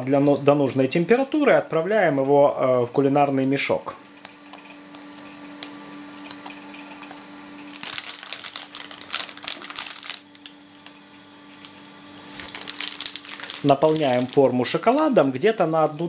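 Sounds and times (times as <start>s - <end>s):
plastic bag crinkling: 7.7s - 11.0s, 11.6s - 15.5s.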